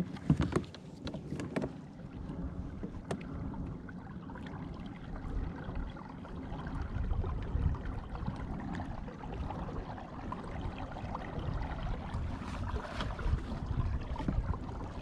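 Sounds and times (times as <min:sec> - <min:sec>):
water moving along kayak hull: 0:00.0 - 0:15.0
wind rumble on microphone: 0:00.0 - 0:15.0
small splashes: 0:11.7 - 0:14.5.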